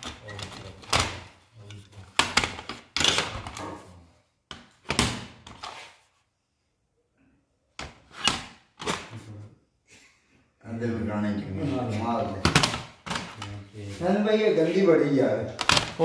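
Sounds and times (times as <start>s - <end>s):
hard objects knocking and clattering: 0.0s - 3.9s, 12.4s - 13.4s, 15.5s - 16.0s.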